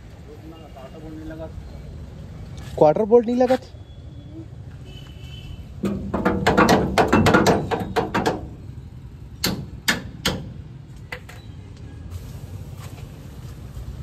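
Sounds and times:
hammer striking metal: 0:09.4 - 0:10.6.

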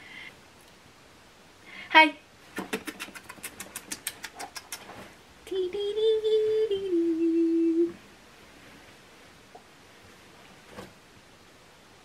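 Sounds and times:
woman humming: 0:05.5 - 0:08.0.

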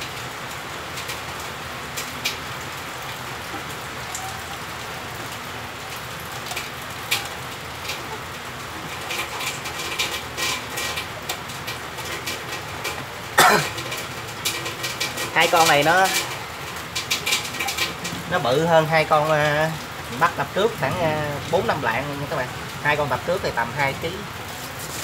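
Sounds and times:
steady rain falling: 0:00.0 - 0:25.0
wire-mesh trap clicking and rattling: 0:08.8 - 0:18.4.

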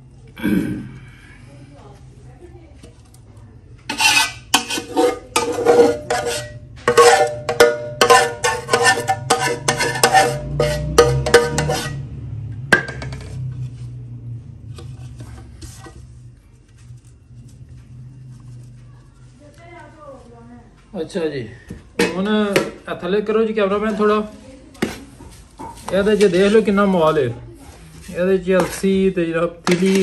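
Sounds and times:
metal utensil scraping metal bowl: 0:03.9 - 0:12.1, 0:14.7 - 0:16.2, 0:29.6 - 0:30.0.

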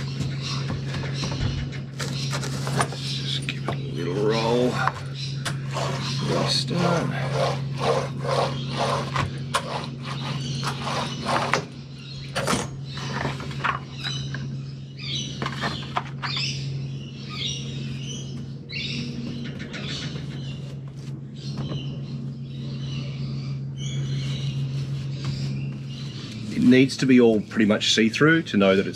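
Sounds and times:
birds chirping: 0:00.0 - 0:28.9
steady low hum: 0:00.0 - 0:28.9
hand tool scraping resin: 0:05.6 - 0:11.6.

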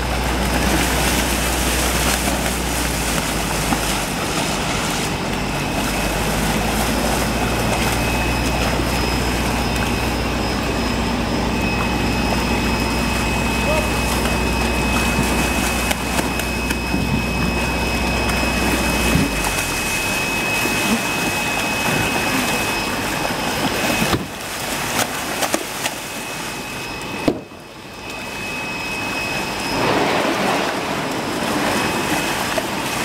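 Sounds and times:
fish thrashing and splashing: 0:00.0 - 0:27.2, 0:29.3 - 0:33.0.

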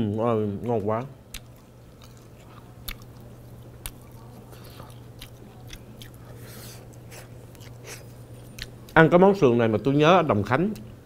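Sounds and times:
steady low hum: 0:00.0 - 0:11.0
person chewing crispy food: 0:00.6 - 0:09.0.

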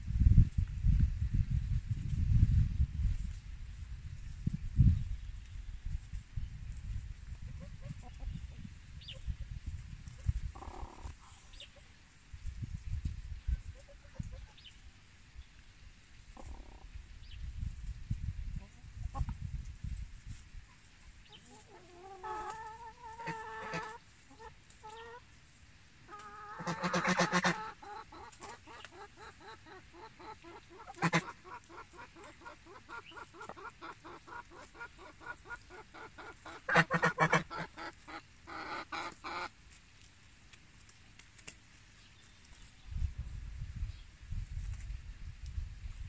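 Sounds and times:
chickens clucking: 0:06.0 - 0:12.0, 0:12.7 - 0:14.8, 0:16.3 - 0:17.0, 0:18.5 - 0:25.3, 0:26.0 - 0:39.8
loud chicken calls: 0:26.1 - 0:39.5.

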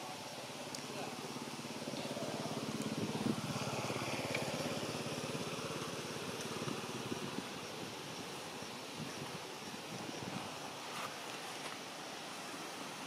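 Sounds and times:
small engine running: 0:01.0 - 0:07.5.

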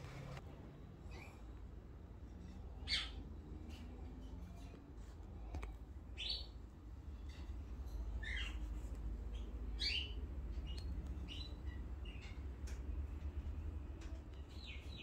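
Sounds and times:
low steady rumble: 0:00.0 - 0:15.0
bird chirping: 0:02.4 - 0:03.9, 0:06.2 - 0:06.6, 0:07.2 - 0:12.8, 0:14.0 - 0:15.0.

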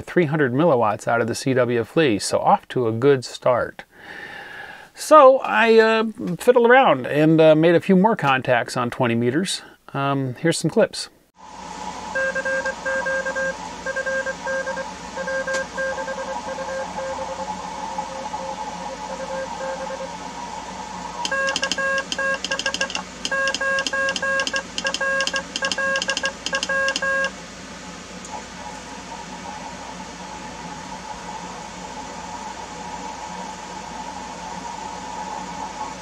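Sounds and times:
radio band hiss: 0:04.9 - 0:36.0
morse code tones: 0:12.1 - 0:17.4, 0:19.1 - 0:20.1, 0:21.2 - 0:27.4
telegraph key clicks: 0:21.3 - 0:27.2.

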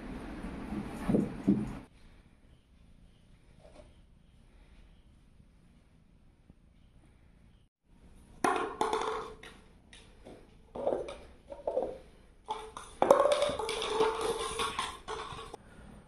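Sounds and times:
paper cups clattering on floor: 0:08.3 - 0:15.6.

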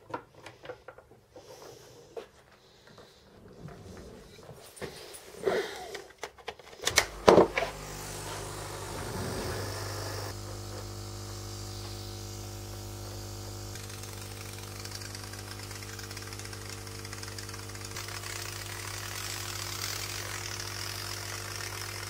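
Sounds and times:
air pump buzzing hum: 0:06.8 - 0:22.0
spray nozzle air hissing: 0:07.6 - 0:10.4.

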